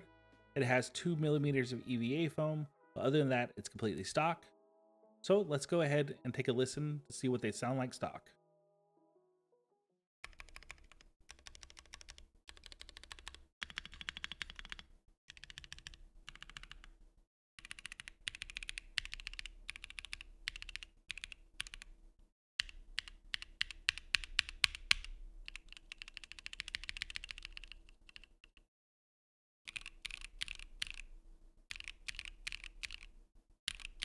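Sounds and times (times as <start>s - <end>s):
keyboard typing: 10.2s - 17.0s, 17.6s - 21.9s, 22.6s - 28.6s, 29.7s - 31.1s, 31.7s - 34.0s.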